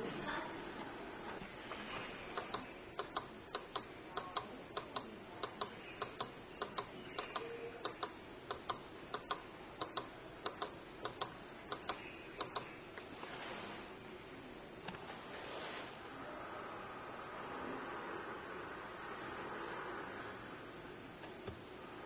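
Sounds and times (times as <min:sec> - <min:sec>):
sharp clicks in pairs: 0:02.4 - 0:12.8.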